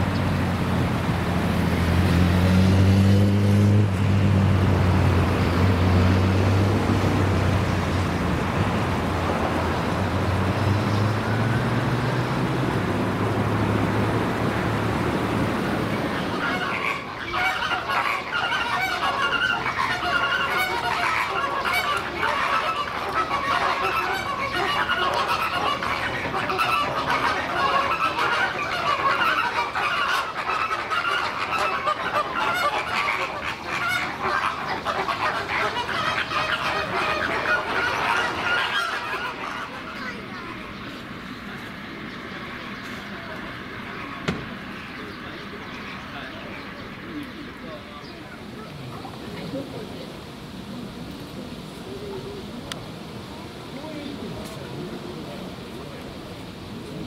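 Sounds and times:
vehicle engine humming: 0.0s - 57.0s
bird calls: 7.0s - 50.3s.

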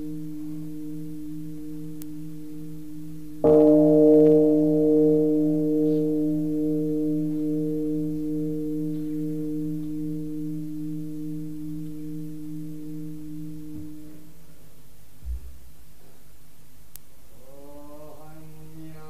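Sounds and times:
large temple bell ringing: 0.0s - 14.6s.

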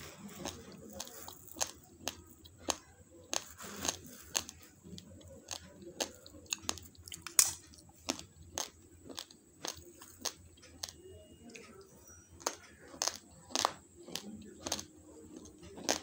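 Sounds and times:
rice grains crunching: 0.0s - 11.0s, 12.4s - 16.0s.

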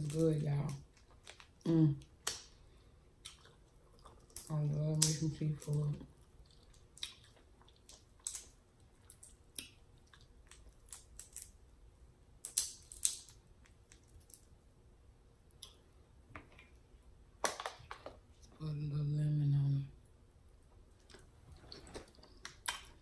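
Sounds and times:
shells cracking and snapping: 0.0s - 2.6s, 7.9s - 11.6s, 12.4s - 14.5s.

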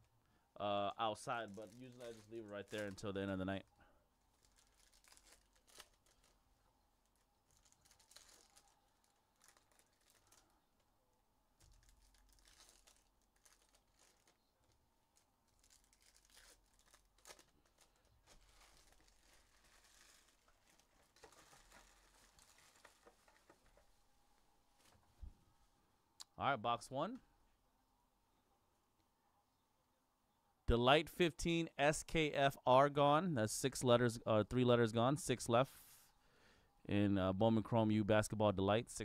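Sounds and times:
foil wrappers tearing and crinkling: 1.3s - 3.1s, 4.3s - 6.4s, 7.0s - 10.5s, 11.6s - 23.8s.

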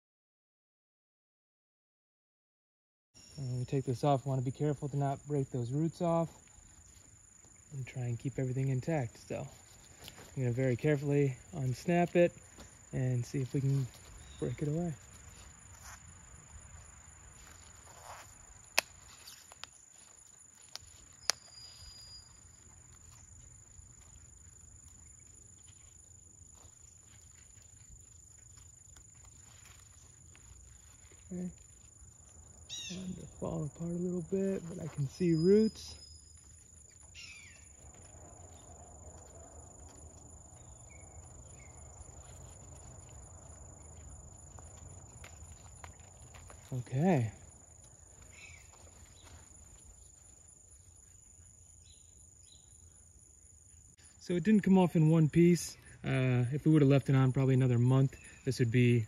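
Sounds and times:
faint bird chirps: 3.2s - 3.9s, 21.1s - 23.3s, 32.7s - 33.4s, 34.4s - 37.8s, 48.3s - 49.4s
crickets trilling: 3.2s - 59.0s
high insect chirring: 3.2s - 59.0s.

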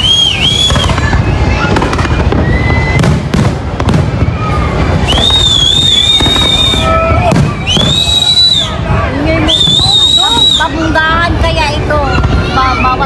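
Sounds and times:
long high whistle: 0.0s - 1.7s, 5.0s - 8.8s, 9.4s - 10.7s
fireworks bangs and crackles: 0.0s - 13.0s
rumble of explosions: 0.3s - 9.3s.

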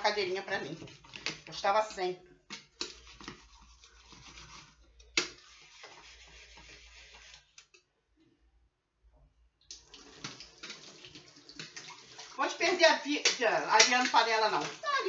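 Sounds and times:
sponge scrubbing a glass: 2.8s - 7.5s.

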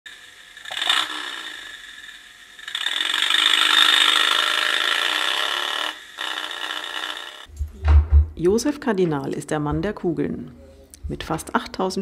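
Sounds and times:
clockwork whirring and ratcheting: 0.1s - 7.5s.

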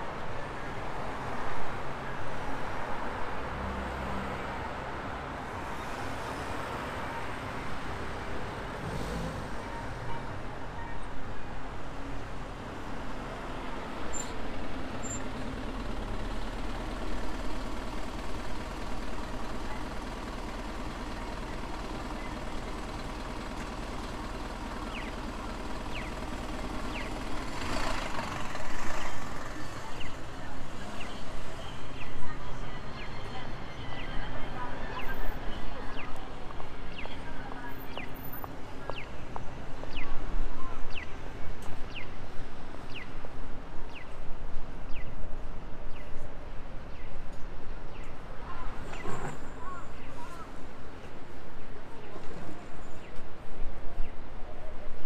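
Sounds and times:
city street traffic: 0.0s - 55.0s
vehicle engine humming: 12.0s - 31.6s.

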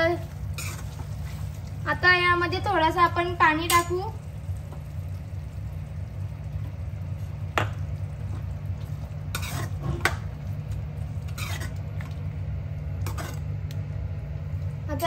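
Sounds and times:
steady low hum: 0.0s - 15.0s
spoon scraping in pot: 0.5s - 1.0s, 9.3s - 10.2s, 11.2s - 12.1s, 13.0s - 13.5s.

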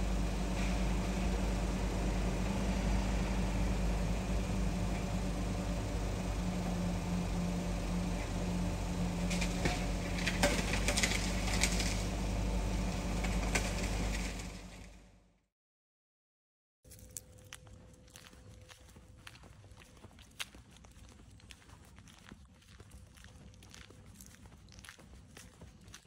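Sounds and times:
air conditioning running: 0.0s - 15.1s
idling car hum: 0.0s - 15.1s.

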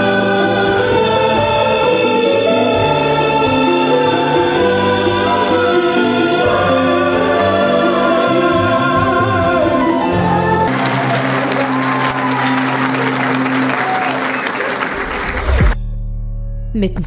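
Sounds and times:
choir singing: 0.0s - 15.1s
audience applause: 10.2s - 15.8s.

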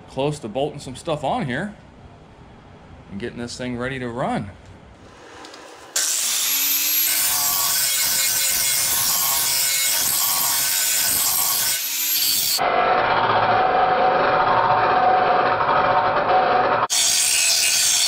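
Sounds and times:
angle grinder grinding metal: 5.1s - 18.0s.

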